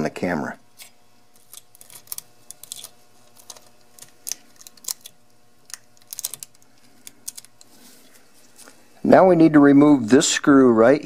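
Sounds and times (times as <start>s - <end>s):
adhesive tape crackling: 0.7s - 7.7s.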